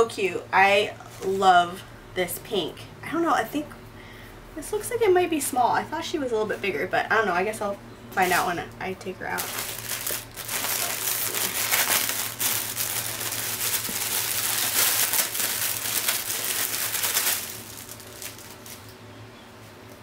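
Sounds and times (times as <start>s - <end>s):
plastic bag crinkling: 9.2s - 19.0s.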